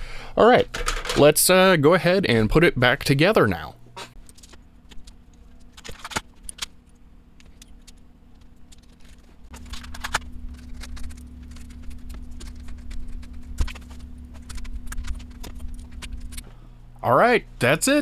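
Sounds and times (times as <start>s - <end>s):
steady low hum: 0.0s - 18.0s
plastic and metal parts clattering: 0.6s - 1.3s, 4.2s - 6.8s, 7.4s - 16.4s.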